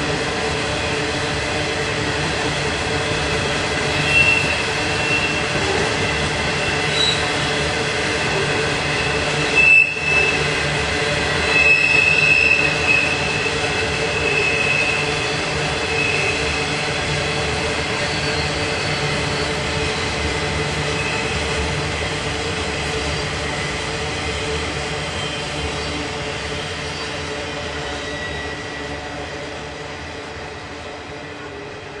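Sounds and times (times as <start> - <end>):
rumble of train wheels: 0.0 - 32.0
high-pitched wheel squeal: 4.0 - 5.6, 6.6 - 7.3, 9.4 - 10.5, 11.4 - 15.1.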